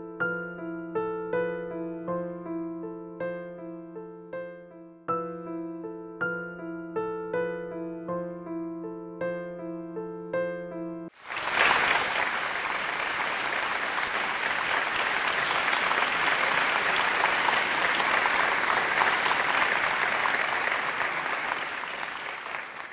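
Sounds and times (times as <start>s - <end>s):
crowd applause: 11.2s - 22.9s.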